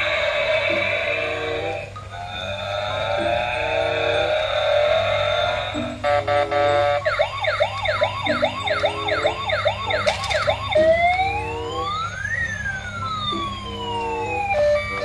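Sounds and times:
electronic toy siren wailing: 0.0 - 15.0
simple beeping tune: 0.7 - 15.0.

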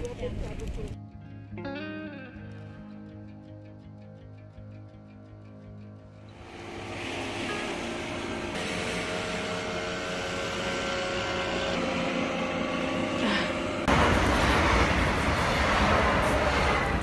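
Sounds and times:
steady held tones: 6.2 - 13.9
train passing close by: 6.3 - 17.0.

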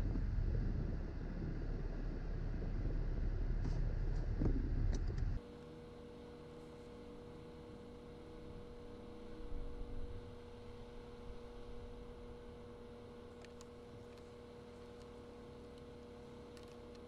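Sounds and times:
low rumble: 0.0 - 5.4
faint steady hum: 0.0 - 17.0.

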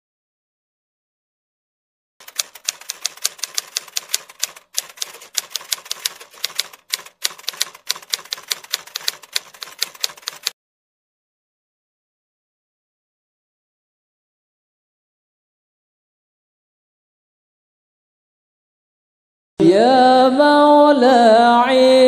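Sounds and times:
rapid keyboard typing clicks: 2.2 - 10.6.

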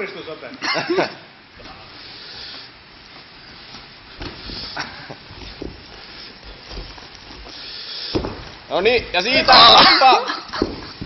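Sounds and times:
punches and footsteps thudding: 3.8 - 9.8, 10.5 - 11.0.

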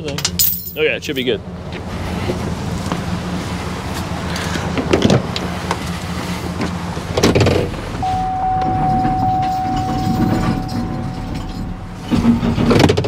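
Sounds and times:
clunks: 6.6 - 13.0
high-pitched whine: 8.0 - 13.0.

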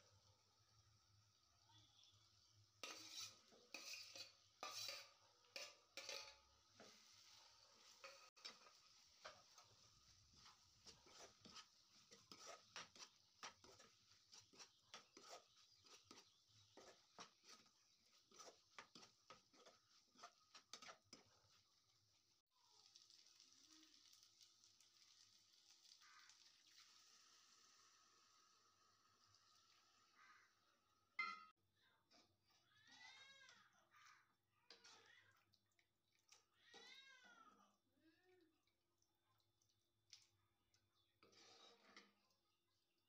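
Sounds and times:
spoon stirring in a pan: 1.8 - 43.0
metal spoon scraping a steel plate: 2.8 - 6.4, 8.0 - 9.6, 10.4 - 21.2, 41.2 - 42.2.

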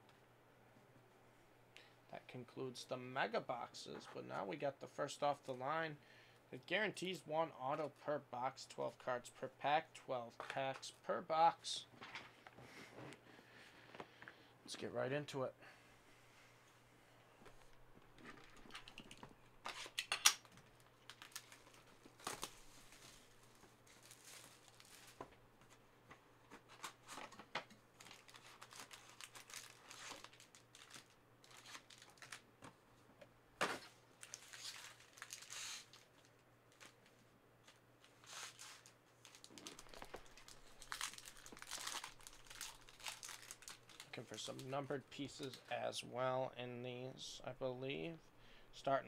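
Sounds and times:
plastic and foil wrappers crinkling: 18.1 - 25.2, 28.0 - 32.5, 34.2 - 44.8.

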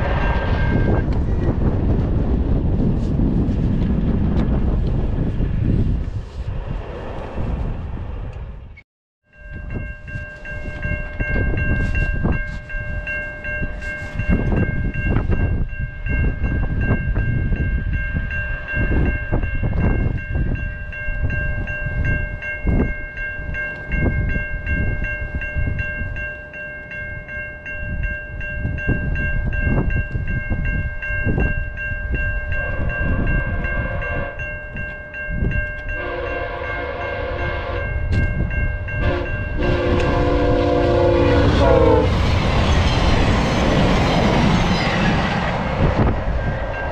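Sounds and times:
wind on microphone: 0.0 - 8.8, 9.4 - 26.3, 27.0 - 46.9
level crossing bell ringing: 9.3 - 39.8
train horn blasts: 32.5 - 34.5, 35.9 - 38.2, 39.0 - 42.2.

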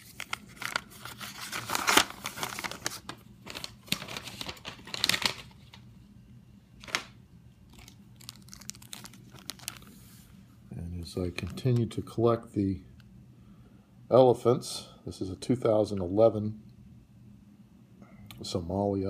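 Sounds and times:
packaging rustling and tearing: 0.0 - 5.8, 6.8 - 10.3.

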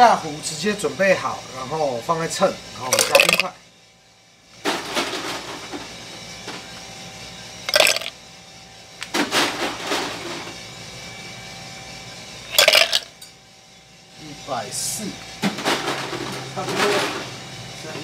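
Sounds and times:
coffee roaster humming: 0.0 - 18.0
ice cubes clinking in glass: 2.9 - 3.5, 7.7 - 8.1, 12.5 - 13.1.

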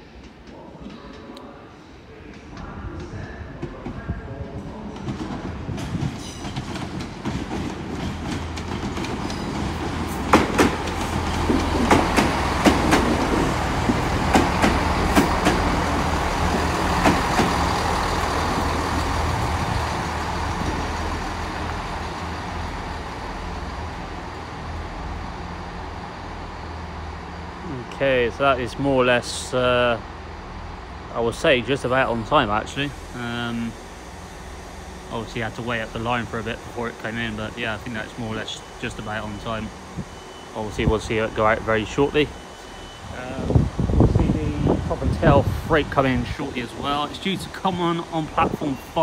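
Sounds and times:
diesel train engines humming: 4.2 - 49.0
train wheels clicking over rail joints: 4.9 - 22.6.

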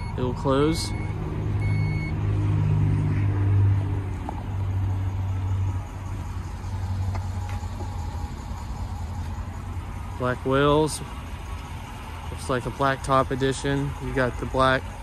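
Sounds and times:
warning chime beeps: 0.0 - 2.2.

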